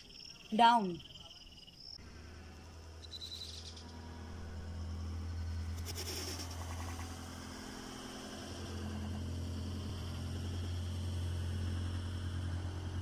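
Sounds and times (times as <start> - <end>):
steady low hum: 1.2 - 13.0.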